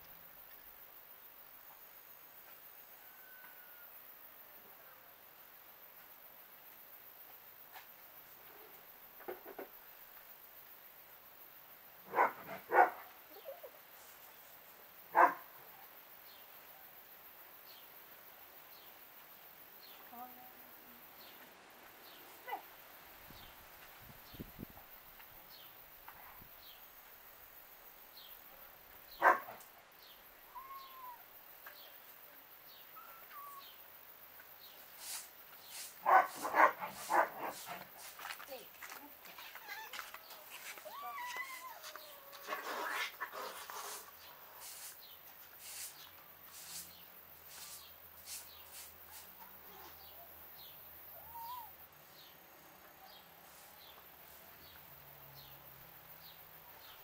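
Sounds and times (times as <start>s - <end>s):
dog barking: 12.1s - 13.1s, 15.1s - 15.5s, 29.2s - 29.6s, 36.0s - 37.8s
faint bird chirps: 30.0s - 32.0s, 32.6s - 33.9s, 47.6s - 52.4s.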